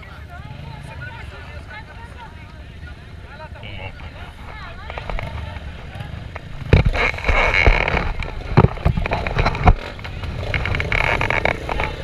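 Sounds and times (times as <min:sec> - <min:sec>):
dirt bike engines running: 0:00.0 - 0:12.0
loud sharp thumps: 0:06.4 - 0:09.9.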